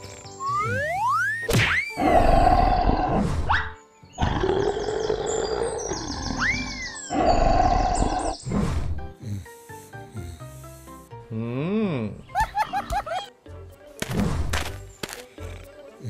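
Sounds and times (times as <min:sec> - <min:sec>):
background music: 0:00.0 - 0:16.0
cartoon dinosaur roars: 0:02.0 - 0:03.5, 0:04.2 - 0:08.4.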